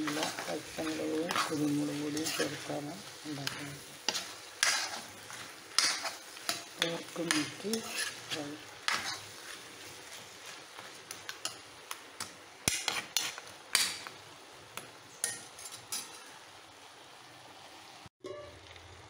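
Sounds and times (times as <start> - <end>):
metal spoon scraping a pan: 0.0 - 11.7, 12.6 - 14.1, 15.2 - 16.3
faint sizzling: 0.0 - 19.0.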